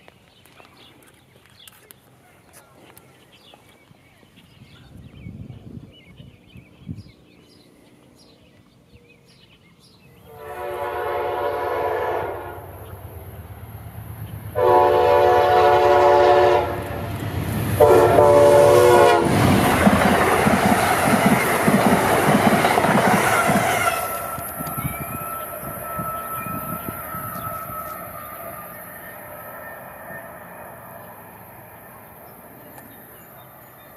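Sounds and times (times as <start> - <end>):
train passing at speed: 10.0 - 33.9
train horn blasts: 10.3 - 12.9, 14.6 - 17.2, 17.8 - 19.5, 23.0 - 30.3.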